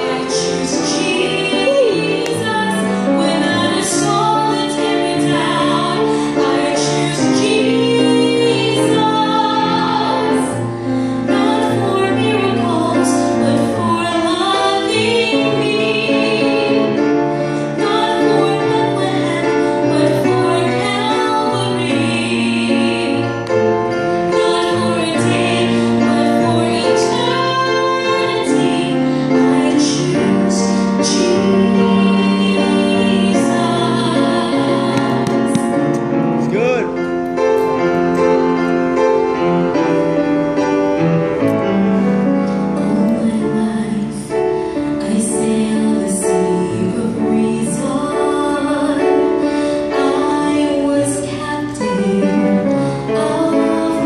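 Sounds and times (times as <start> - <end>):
woman singing gospel: 0.0 - 10.5, 24.3 - 35.8.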